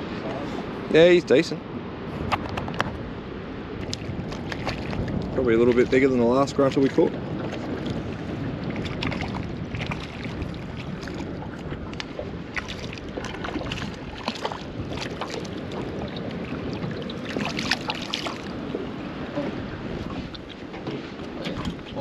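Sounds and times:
wind on microphone: 0.0s - 22.0s
water lapping against boat hull: 3.7s - 22.0s
short knocks and splashy ticks: 3.8s - 8.0s, 8.7s - 19.6s, 20.3s - 22.0s.

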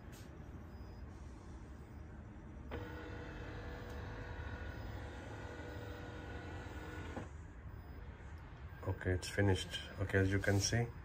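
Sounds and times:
printer scanner motor whining: 2.6s - 8.2s.

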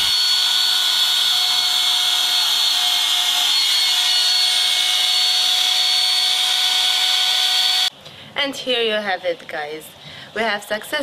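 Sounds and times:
trim router whining: 0.0s - 7.9s.

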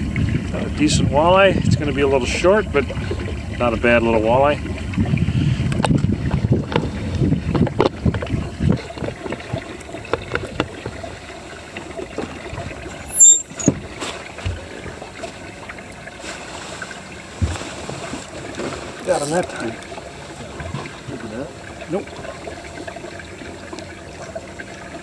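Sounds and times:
wind buffeting microphone: 0.0s - 11.2s
waves lapping against boat hull: 0.0s - 25.0s
sharp high-pitched squeak: 13.1s - 13.7s.

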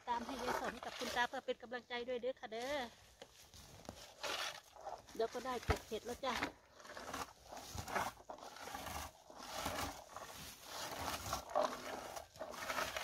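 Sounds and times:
berry picker rustling through shrubs: 2.5s - 13.0s.

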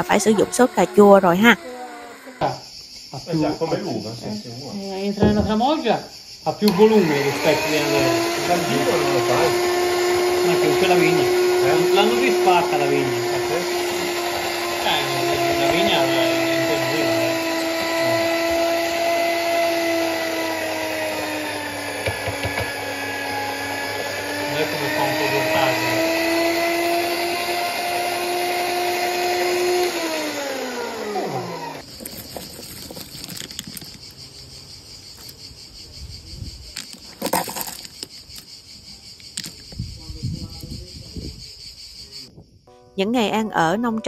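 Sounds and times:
electric motor whining: 0.0s - 2.8s, 6.6s - 34.0s
insects chirring: 0.0s - 44.0s
loud rustling: 29.6s - 34.3s.

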